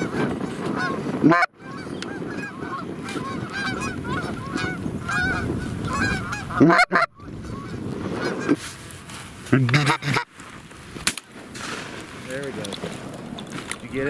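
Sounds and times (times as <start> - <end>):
geese honking: 0.0 - 8.7, 9.7 - 10.3.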